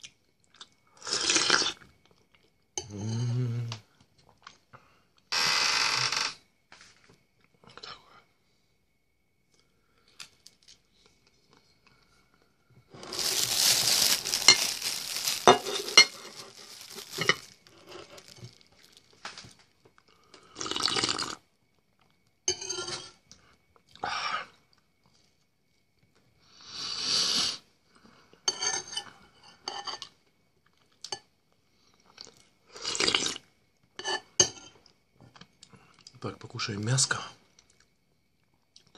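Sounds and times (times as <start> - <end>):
crunching and chewing: 0.0 - 2.6, 9.5 - 22.2, 30.0 - 33.5, 34.7 - 36.2, 37.5 - 38.9.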